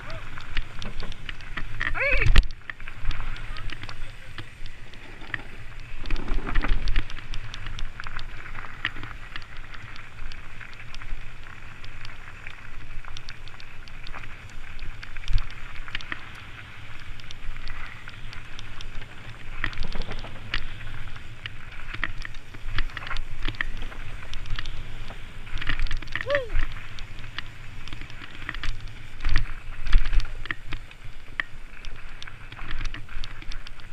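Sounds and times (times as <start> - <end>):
wind on microphone: 0.0 - 8.6
bike rattling over rocks: 0.0 - 33.9
bike tyres crunching on gravel: 0.0 - 33.9.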